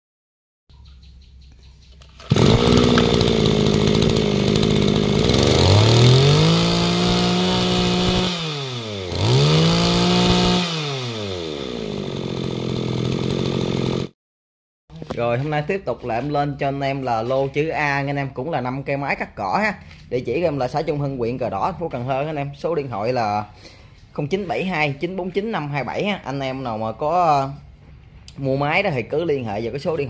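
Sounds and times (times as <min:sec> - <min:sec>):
brushcutter engine revving: 0:02.1 - 0:14.1.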